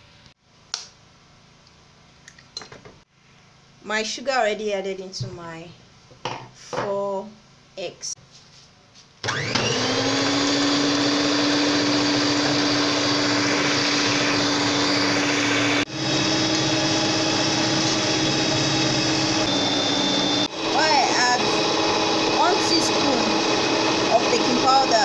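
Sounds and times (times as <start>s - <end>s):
electric hand mixer whining: 9.2s - 25.0s.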